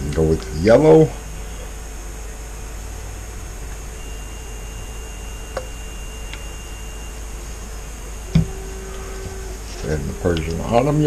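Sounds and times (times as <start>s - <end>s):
low room hum and hiss: 0.0s - 11.0s.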